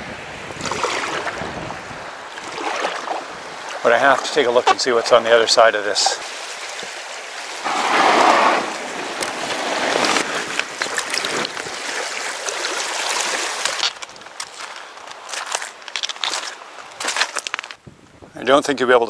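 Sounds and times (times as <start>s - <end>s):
water rushing and lapping: 0.0s - 17.0s
water splashing: 0.5s - 14.7s.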